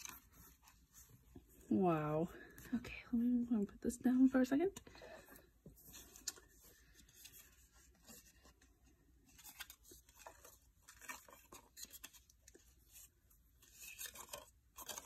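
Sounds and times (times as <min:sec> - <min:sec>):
paper cards rustling and clicking: 0:00.0 - 0:01.6, 0:04.8 - 0:15.0.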